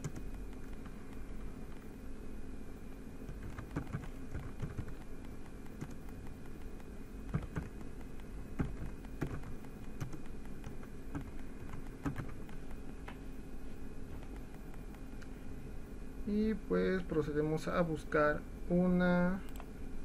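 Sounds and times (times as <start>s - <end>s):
steady low hum: 0.0s - 20.0s
keyboard key clicks: 3.3s - 12.8s.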